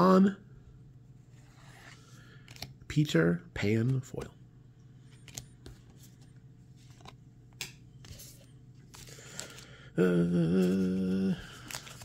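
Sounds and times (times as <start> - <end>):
cards clicking: 2.4 - 2.8
man humming low note: 10.0 - 11.5.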